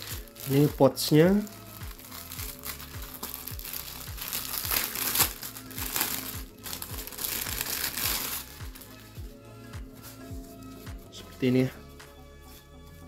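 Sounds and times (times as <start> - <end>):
plastic bag crinkling: 0.0 - 9.1
background music with beat: 0.0 - 13.0.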